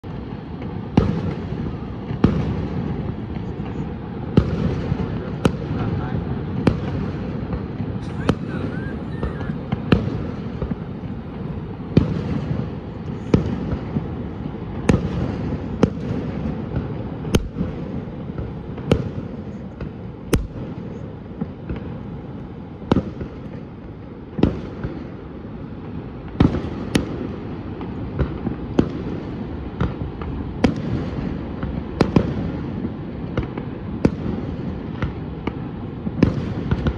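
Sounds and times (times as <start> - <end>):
fireworks bangs: 0.0 - 36.9.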